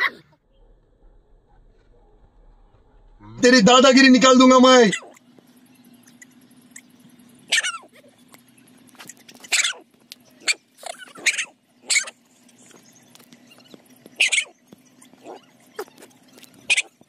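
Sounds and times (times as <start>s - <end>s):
dog barking: 7.5s - 8.0s, 9.5s - 9.8s, 10.4s - 12.2s, 14.2s - 14.5s, 15.1s - 16.1s, 16.7s - 17.0s.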